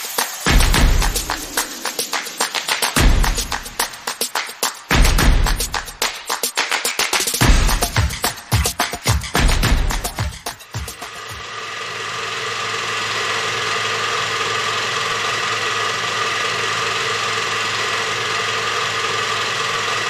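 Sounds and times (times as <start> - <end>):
film projector whirring: 10.5 - 20.0.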